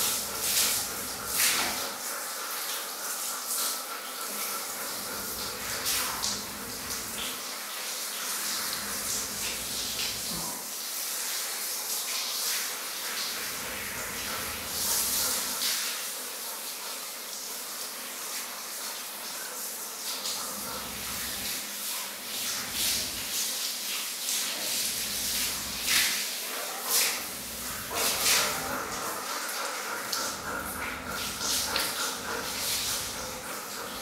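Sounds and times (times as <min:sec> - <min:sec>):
shower head spraying water: 0:00.0 - 0:02.2, 0:22.3 - 0:34.0.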